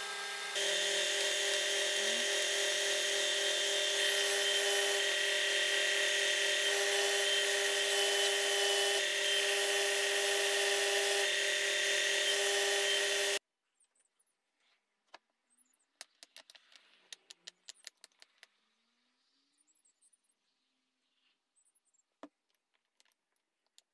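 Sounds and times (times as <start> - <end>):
belt sander running: 0.0 - 13.4.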